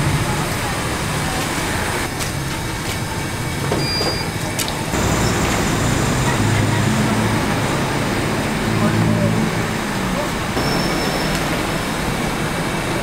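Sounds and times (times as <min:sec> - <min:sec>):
roadside traffic noise: 0:00.0 - 0:13.0
high beep: 0:10.6 - 0:11.4.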